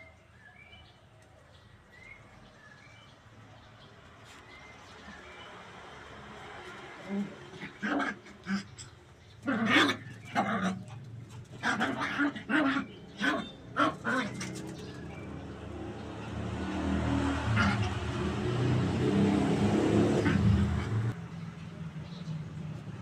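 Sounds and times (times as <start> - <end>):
vehicle engine rumble: 13.2 - 23.0.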